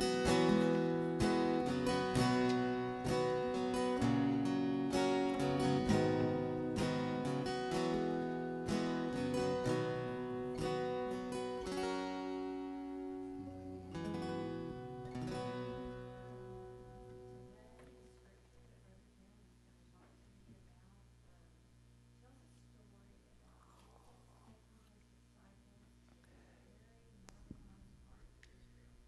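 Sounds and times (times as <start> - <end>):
acoustic guitar strumming: 0.0 - 17.7.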